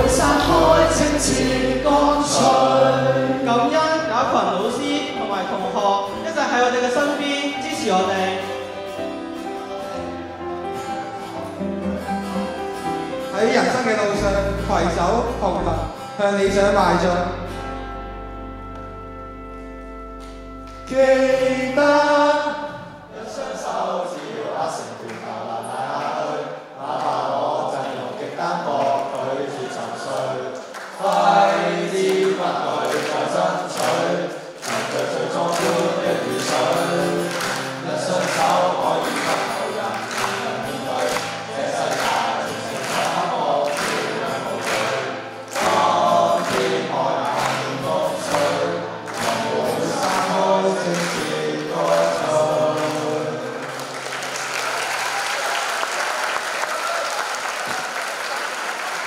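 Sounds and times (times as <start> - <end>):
mixed choir singing: 0.0 - 4.7, 21.0 - 54.9
acoustic guitar: 0.0 - 55.0
audience applause: 28.9 - 59.0.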